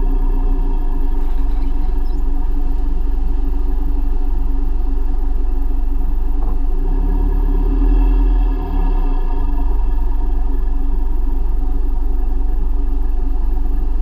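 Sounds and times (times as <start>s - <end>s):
diesel engine droning: 0.0s - 14.0s.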